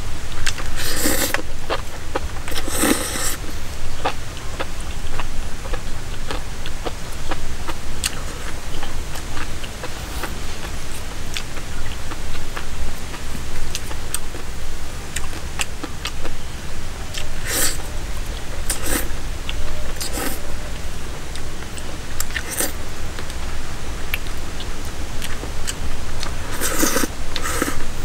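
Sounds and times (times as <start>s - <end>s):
steady low rumble: 0.0s - 28.0s
person biting and chewing: 0.4s - 1.8s, 2.5s - 4.2s, 17.1s - 17.8s, 18.7s - 19.1s, 22.2s - 22.8s, 25.2s - 27.9s.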